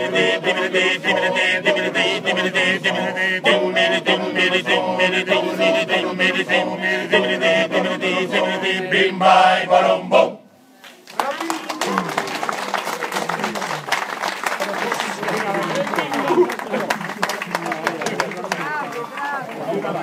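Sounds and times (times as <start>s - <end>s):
men's choir singing a cappella: 0.0s - 10.5s.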